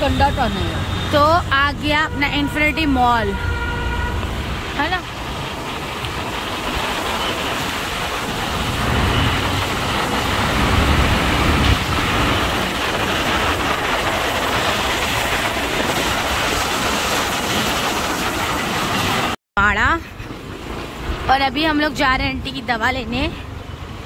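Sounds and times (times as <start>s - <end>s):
vehicle moving through traffic: 0.0s - 24.0s.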